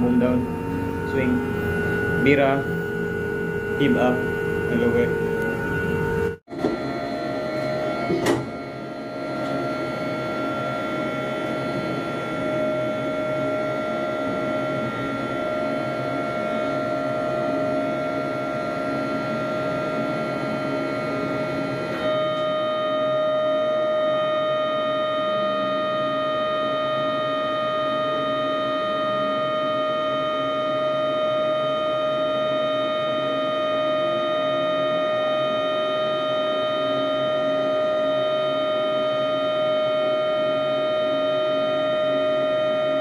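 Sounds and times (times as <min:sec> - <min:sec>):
crane machinery whine: 0:00.0 - 0:43.0.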